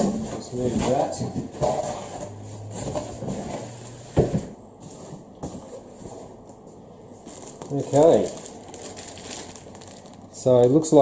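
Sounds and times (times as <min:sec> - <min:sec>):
cardboard scraping and rustling: 0:00.0 - 0:06.4.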